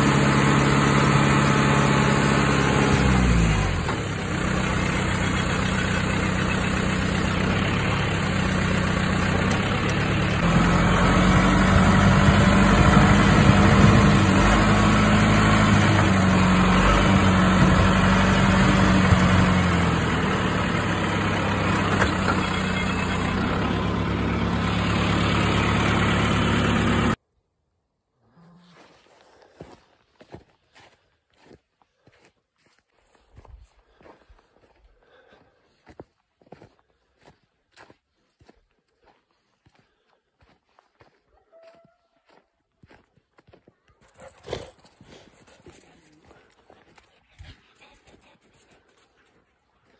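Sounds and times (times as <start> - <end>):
tractor diesel engine running: 0.0 - 27.2.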